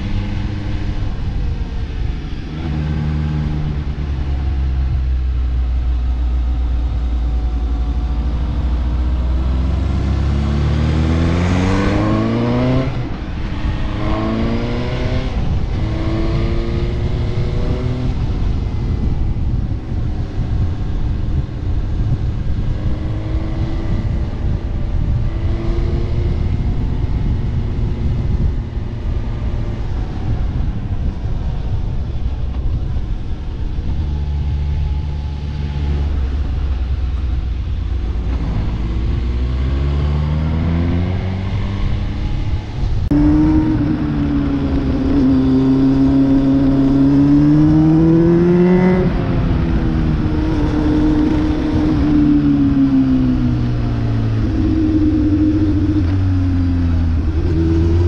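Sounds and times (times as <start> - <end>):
road rumble: 0.0 - 58.0
vehicle engine revving: 0.0 - 58.0.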